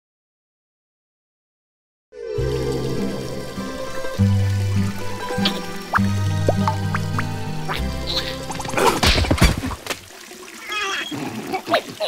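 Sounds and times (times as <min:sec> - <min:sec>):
cartoon music with bass line: 0:02.4 - 0:08.8.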